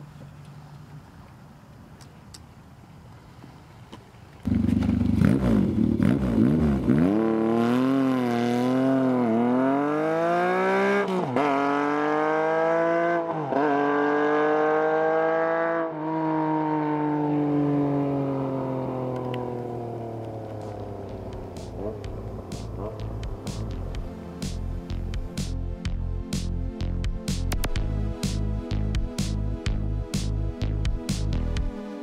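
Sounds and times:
motorcycle engine revving and accelerating: 0:04.4 - 0:25.0.

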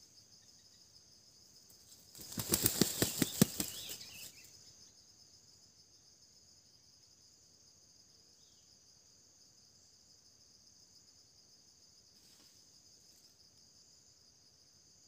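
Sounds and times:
insects chirring: 0:00.0 - 0:15.0
rooster wing-flapping: 0:02.1 - 0:04.0.

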